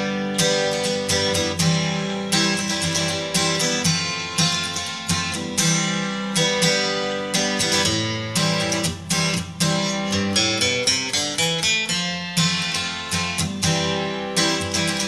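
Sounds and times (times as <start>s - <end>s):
acoustic guitar playing: 0.0s - 15.0s.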